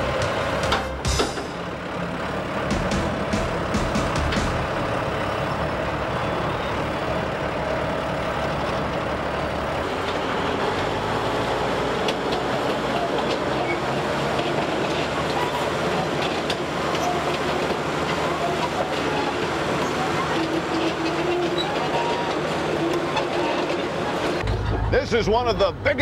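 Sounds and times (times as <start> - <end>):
heavy machinery running: 0.0 - 25.8
knocks and clicks: 2.7 - 4.7.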